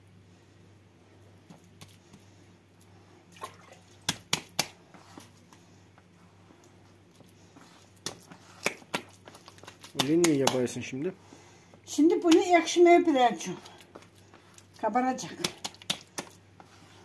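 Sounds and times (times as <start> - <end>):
dough squelching: 1.3 - 17.0
dough slaps: 4.0 - 4.8, 8.0 - 10.8, 12.1 - 12.6, 15.2 - 16.4.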